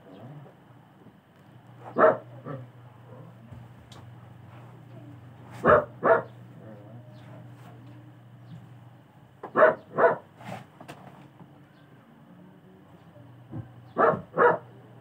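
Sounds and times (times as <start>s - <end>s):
low steady hum: 0.0s - 15.0s
dog barking: 1.9s - 2.6s, 5.6s - 6.4s, 9.5s - 10.3s, 13.9s - 14.8s.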